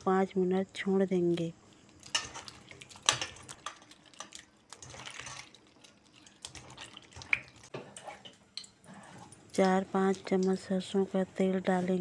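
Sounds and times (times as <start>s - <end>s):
water splashing in steel bowl: 2.1s - 7.7s.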